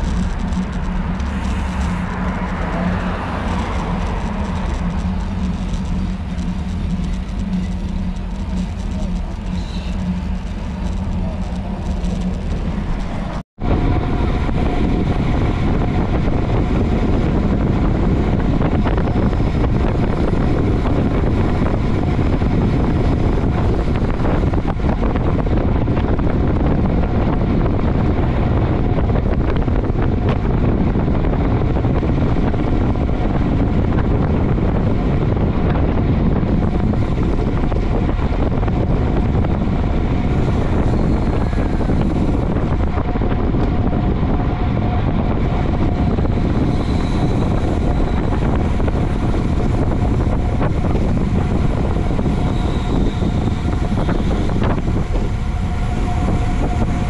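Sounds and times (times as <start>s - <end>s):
wind buffeting microphone: 0.0s - 57.0s.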